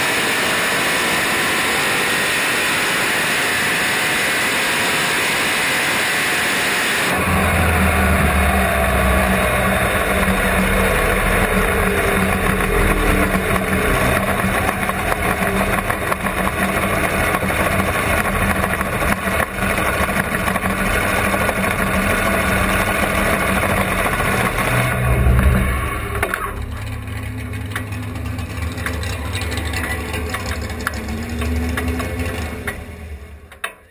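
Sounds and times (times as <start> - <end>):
dragster engine idling: 7.1 - 33.8.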